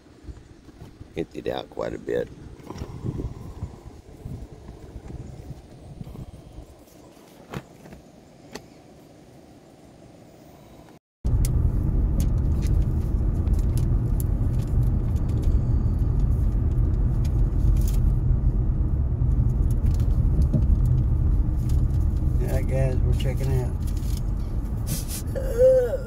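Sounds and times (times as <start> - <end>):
faint open-air ambience: 0.0 - 11.0
car interior driving rumble: 2.6 - 6.8, 11.3 - 26.0.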